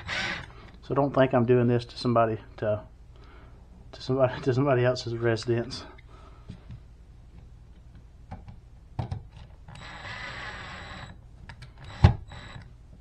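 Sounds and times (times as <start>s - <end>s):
cordless drill whining: 0.0s - 0.5s, 9.7s - 11.2s, 11.8s - 12.7s.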